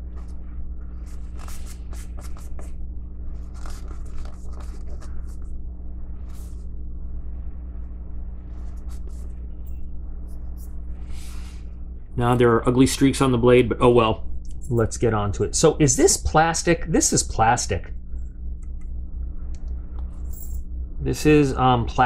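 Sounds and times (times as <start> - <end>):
low steady hum: 0.0 - 22.0
paper towel scrubbing a blade: 0.1 - 2.8.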